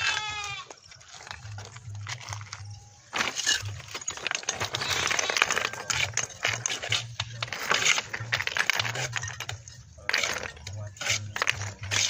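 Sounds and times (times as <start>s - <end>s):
trowel scraping mortar on stone: 3.1s - 12.0s.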